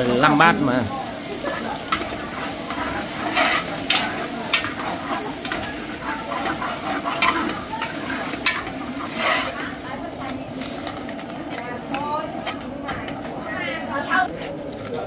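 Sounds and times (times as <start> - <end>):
hiss of cooking: 0.0 - 11.2
utensil scraping in a pot: 0.4 - 11.2.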